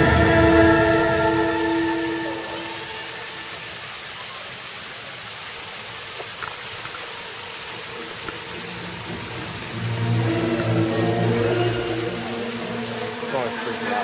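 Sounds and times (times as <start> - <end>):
fountain water splashing: 0.0 - 14.0.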